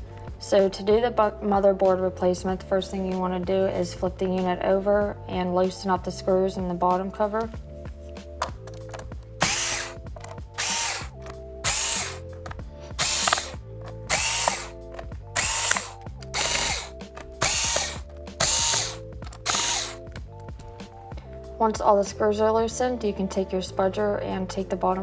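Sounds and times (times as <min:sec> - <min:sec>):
soft background music: 0:00.0 - 0:25.0
electric screwdriver whirring: 0:09.4 - 0:20.2.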